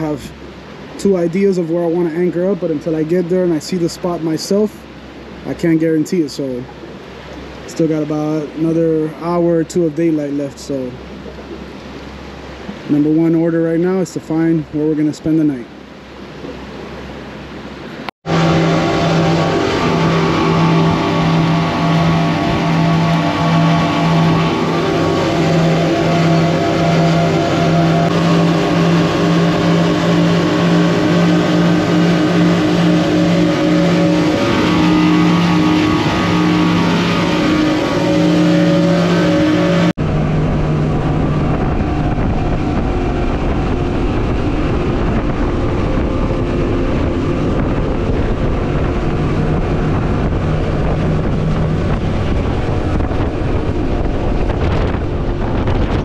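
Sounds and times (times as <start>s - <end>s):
outboard engines running at speed: 0.0s - 56.0s
water rushing past: 0.0s - 56.0s
wind rushing: 18.2s - 56.0s.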